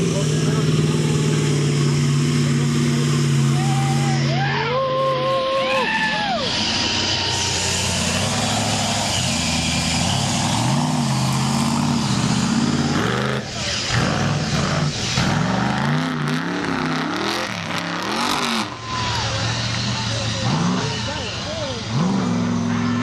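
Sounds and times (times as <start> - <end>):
truck engine revving hard: 0.0 - 23.0.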